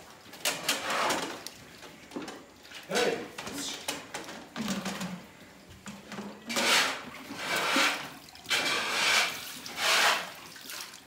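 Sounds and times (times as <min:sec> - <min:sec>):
milk squirting into a pail: 0:05.9 - 0:11.0.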